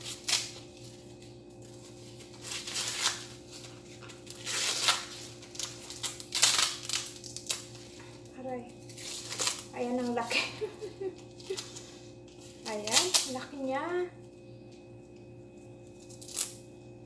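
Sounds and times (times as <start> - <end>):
corn husks tearing: 0.0 - 1.0, 1.6 - 8.1, 8.8 - 10.3, 11.4 - 13.5, 16.1 - 16.6.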